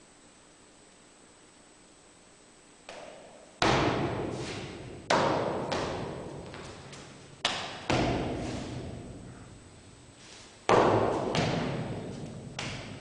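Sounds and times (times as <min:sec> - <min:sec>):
foot stamps on hard floor: 0:03.6 - 0:09.0, 0:10.7 - 0:13.0.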